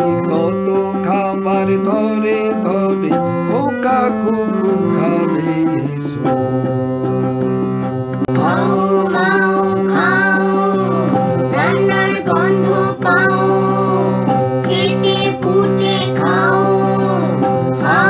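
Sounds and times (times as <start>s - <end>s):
high voice singing: 0.0s - 6.1s, 8.3s - 18.0s.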